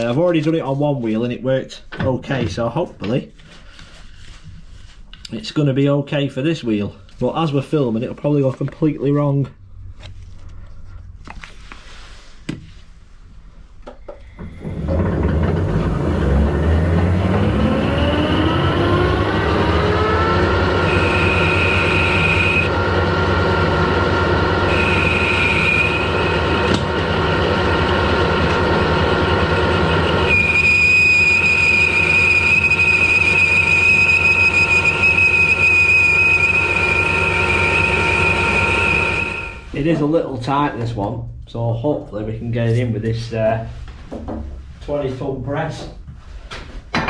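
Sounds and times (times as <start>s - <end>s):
metal lathe running: 14.6s - 39.7s
high squeal of cutting tool: 17.4s - 22.7s, 24.5s - 26.9s, 29.2s - 39.7s.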